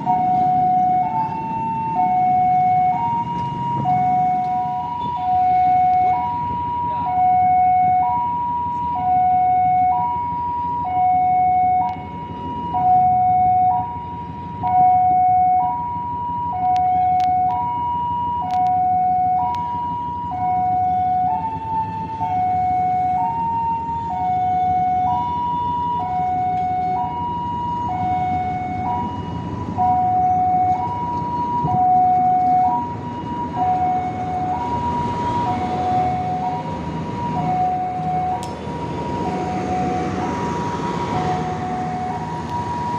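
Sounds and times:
two-tone crossing alarm: 0:00.0 - 0:42.9
train rumbling past: 0:27.1 - 0:42.9.

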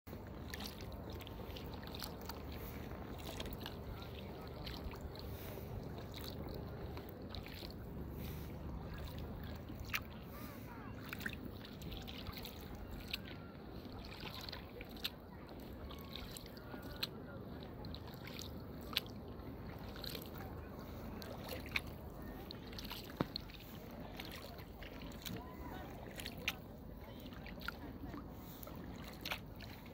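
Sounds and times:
paddle splashing water: 0:00.1 - 0:29.9
steady low water rush: 0:00.1 - 0:29.9.

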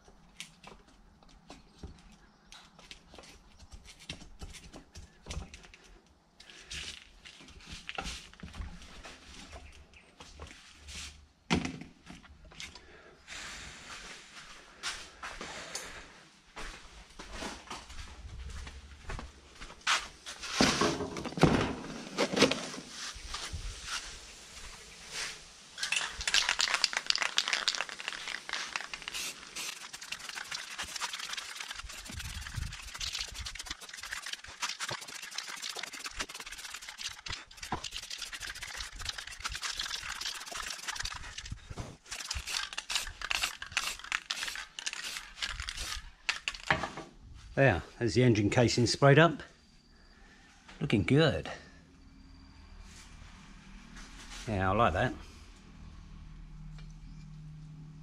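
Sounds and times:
spray paint can hissing: 0:25.8 - 0:41.5, 0:42.1 - 0:46.7.

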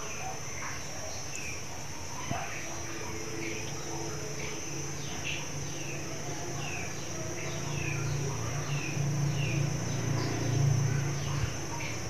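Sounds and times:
high insect drone: 0:00.0 - 0:12.0.

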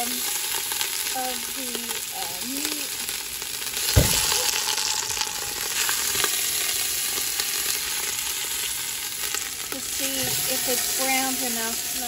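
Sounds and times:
meat sizzling in hot oil: 0:00.0 - 0:12.0
oil popping: 0:03.2 - 0:10.6
low thump: 0:03.9 - 0:04.3.

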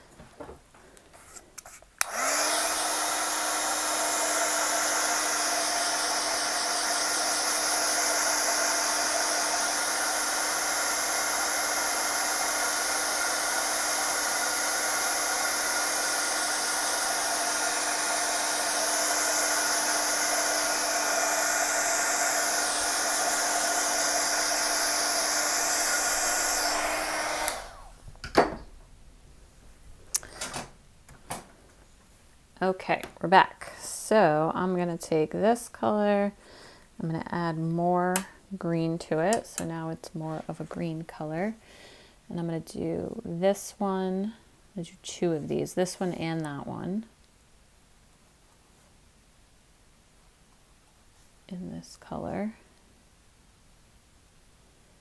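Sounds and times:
heat tool blowing hot air: 0:02.0 - 0:28.0.

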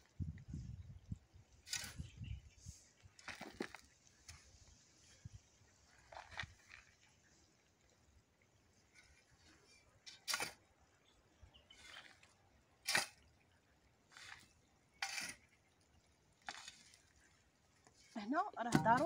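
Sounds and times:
shovel scraping and pouring soil: 0:01.6 - 0:05.1, 0:05.8 - 0:07.0, 0:08.9 - 0:10.7, 0:11.7 - 0:13.4, 0:14.1 - 0:15.6, 0:16.4 - 0:19.0.

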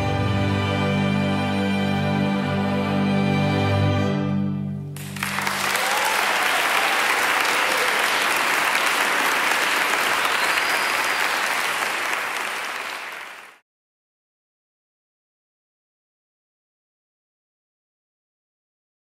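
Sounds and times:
audience applauding: 0:05.0 - 0:13.6.

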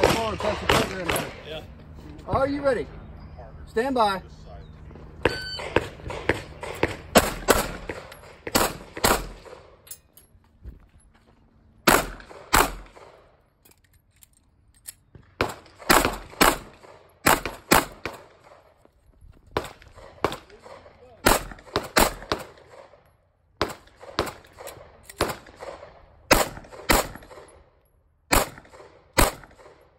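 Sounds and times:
pistol shots: 0:00.0 - 0:01.4, 0:05.3 - 0:09.8, 0:11.8 - 0:13.3, 0:15.4 - 0:18.6, 0:19.6 - 0:23.0, 0:23.6 - 0:27.6, 0:28.3 - 0:29.9.

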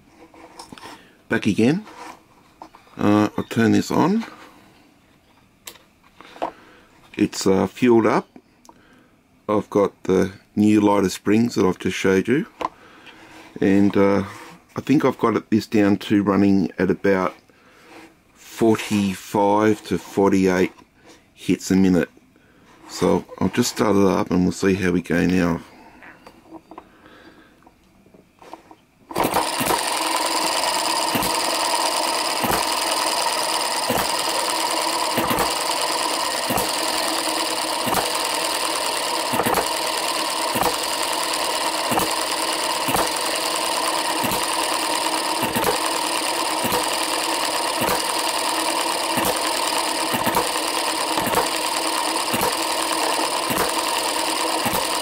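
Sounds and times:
model engine mechanical whirr: 0:29.1 - 0:55.0
sharp engine firing stroke: 0:29.1 - 0:55.0.

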